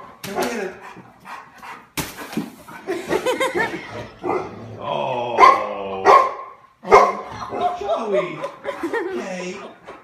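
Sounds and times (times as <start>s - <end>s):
dog barking: 5.4s - 7.7s.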